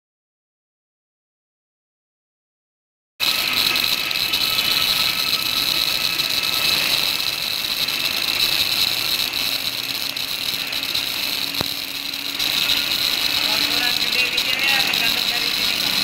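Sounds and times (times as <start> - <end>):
gas cutting torch hiss: 3.2 - 16.0.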